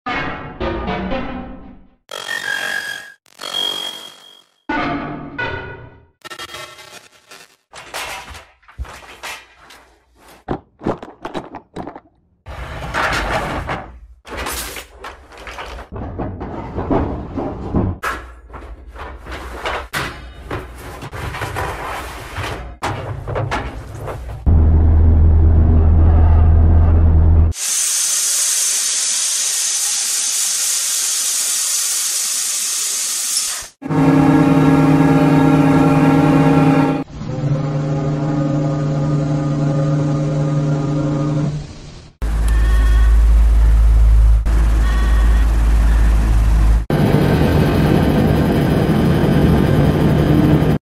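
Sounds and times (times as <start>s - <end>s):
dense mechanical noise: 33.8s - 50.8s.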